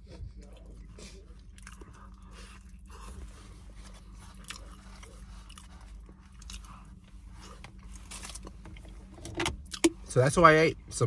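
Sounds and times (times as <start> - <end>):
person chewing food: 0.0 - 10.0
steady low hum: 0.0 - 11.0.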